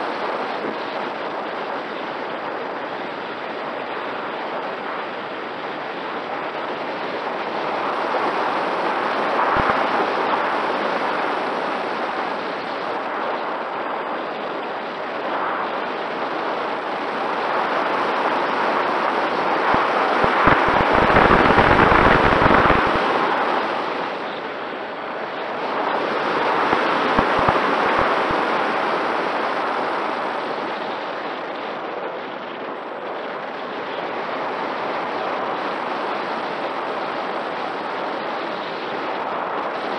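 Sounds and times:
wind rushing over microphone: 0:00.0 - 0:39.9
electric motor and propeller whine: 0:19.6 - 0:23.4.

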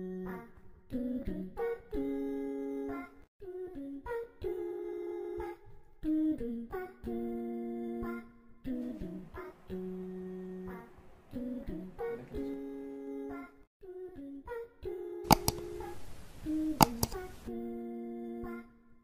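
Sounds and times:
sharp click: 0:15.3 - 0:17.5.

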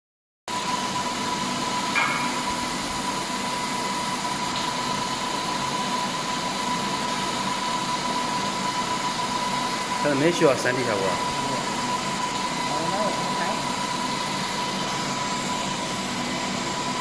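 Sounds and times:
laser machine hiss and hum: 0:00.6 - 0:17.0
high-pitched tone: 0:02.0 - 0:02.7.

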